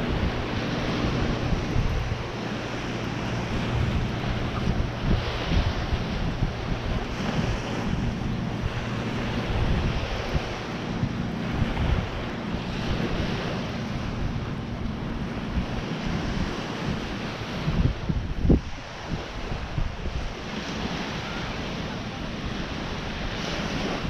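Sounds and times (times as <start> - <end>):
ocean surf: 0.0 - 24.0
wind buffeting the microphone: 0.0 - 24.0.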